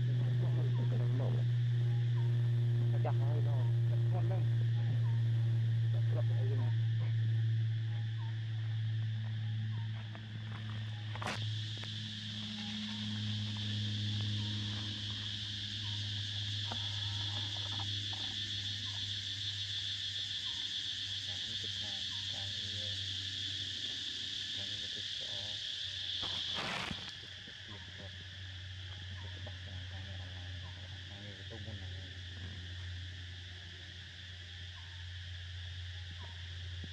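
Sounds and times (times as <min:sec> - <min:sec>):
low steady hum: 0:00.0 - 0:24.6
insects buzzing: 0:00.0 - 0:36.9.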